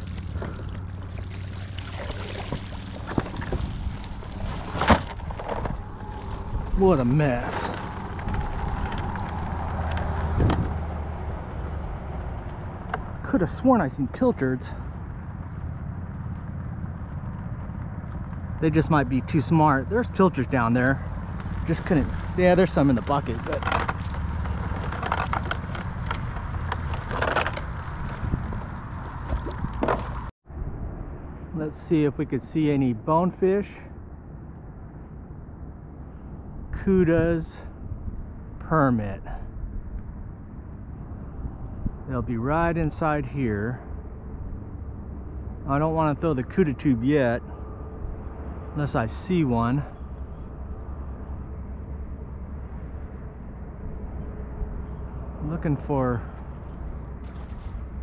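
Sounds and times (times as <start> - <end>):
net and plastic bucket rustling: 0.0 - 10.4, 21.7 - 30.3
water pouring and dripping: 0.0 - 11.0
steady low rumble: 0.0 - 58.0.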